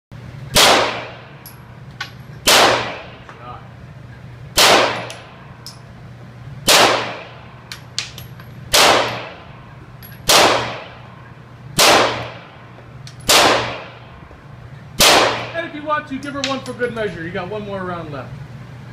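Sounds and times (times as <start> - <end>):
pistol shots echoing indoors: 0.5 - 1.4, 2.4 - 3.2, 4.6 - 5.3, 6.7 - 7.4, 8.7 - 9.4, 10.3 - 11.0, 11.8 - 12.4, 13.3 - 14.1, 15.0 - 15.6.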